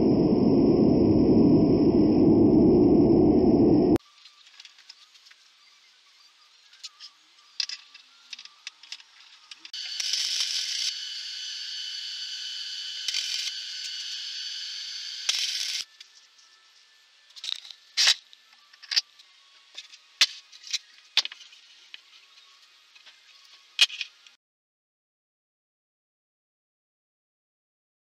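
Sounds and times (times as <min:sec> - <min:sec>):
arc welding crackling hiss: 0:09.5 - 0:15.9.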